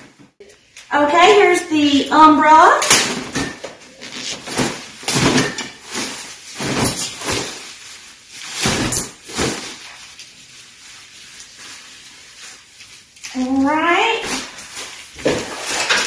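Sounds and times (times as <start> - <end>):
cloth rustling: 3.1 - 13.3.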